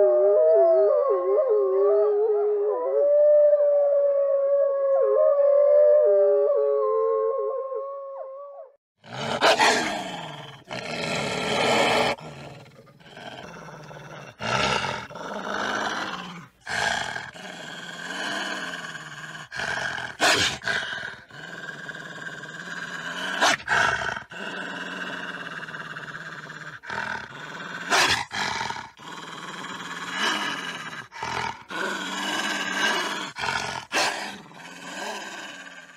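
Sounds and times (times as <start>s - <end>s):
wolf growling and snarling: 9.0s - 35.9s.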